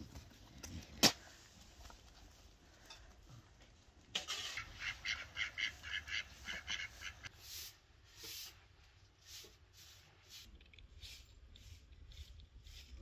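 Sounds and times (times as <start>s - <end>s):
ducks quacking: 4.6s - 7.3s.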